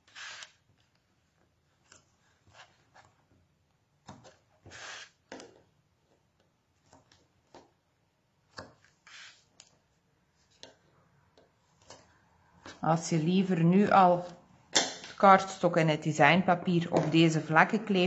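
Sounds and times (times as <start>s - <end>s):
tape being pulled and torn: 0.0s - 1.0s, 4.1s - 5.6s, 8.5s - 9.8s.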